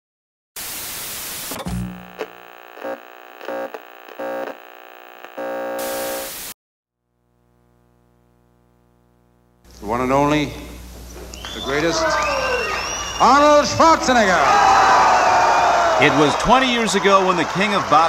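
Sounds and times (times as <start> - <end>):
white-noise static: 0.6 - 6.6, 7.3 - 11.1
faint steady hum: 1.8 - 6.3, 7.1 - 13.2.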